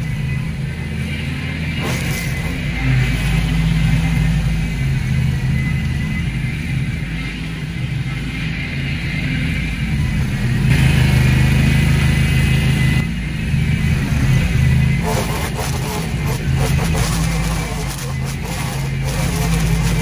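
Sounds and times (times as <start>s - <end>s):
string trimmer engine running: 15.0s - 20.0s
trimmer line striking weeds: 15.0s - 20.0s.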